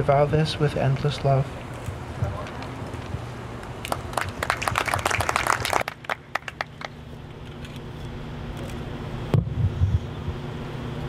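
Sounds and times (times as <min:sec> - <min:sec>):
people applauding: 0:03.8 - 0:07.0.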